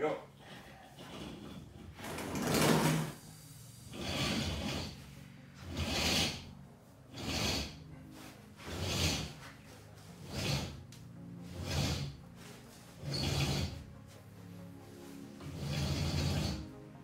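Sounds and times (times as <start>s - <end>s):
rope rasping through pulleys: 0.3s - 3.3s, 3.9s - 17.0s.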